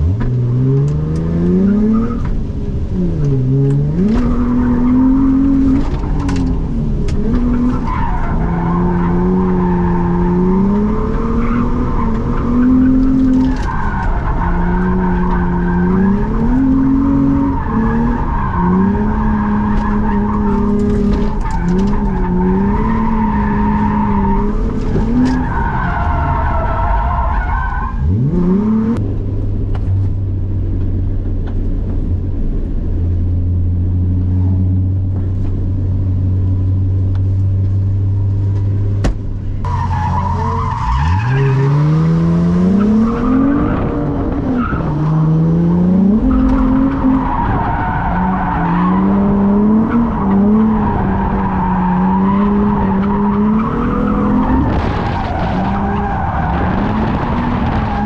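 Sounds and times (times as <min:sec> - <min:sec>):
car engine revving: 0:00.0 - 0:58.0.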